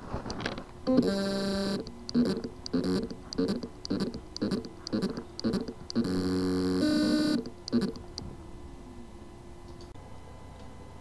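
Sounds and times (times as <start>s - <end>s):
hard drive motor hum and pulses: 0.1s - 9.6s.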